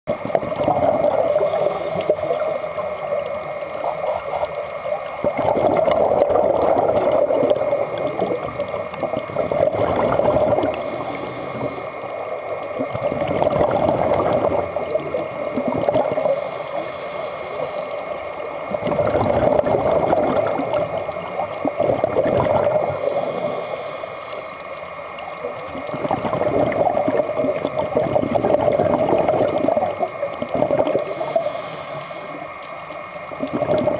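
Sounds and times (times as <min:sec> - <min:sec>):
underwater exhaust bubbles gurgling: 0:00.1 - 0:33.9
regulator inhalation hiss: 0:01.2 - 0:04.7, 0:10.7 - 0:12.1, 0:16.2 - 0:18.2, 0:22.8 - 0:24.8, 0:31.0 - 0:32.5.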